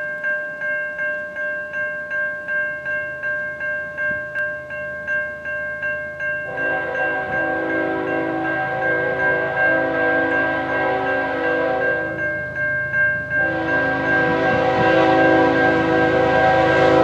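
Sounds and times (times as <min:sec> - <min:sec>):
crossing bell ringing: 0:00.0 - 0:17.0
locomotive horn chord: 0:06.5 - 0:12.3, 0:13.4 - 0:17.0.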